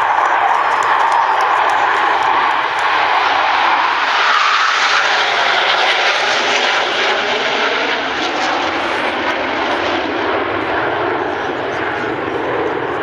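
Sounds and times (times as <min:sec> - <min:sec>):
fighter jets roaring overhead: 0:00.0 - 0:13.0.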